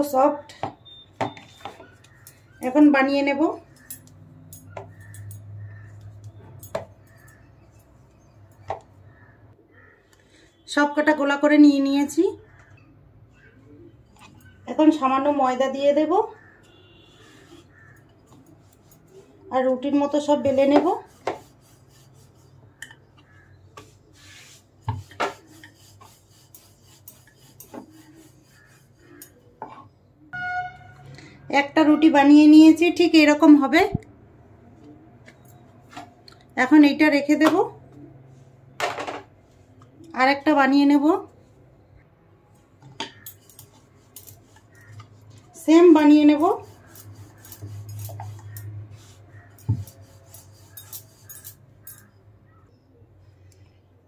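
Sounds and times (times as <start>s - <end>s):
rolling pin rubbing dough: 20.4s - 22.7s, 23.3s - 29.4s, 43.1s - 51.4s.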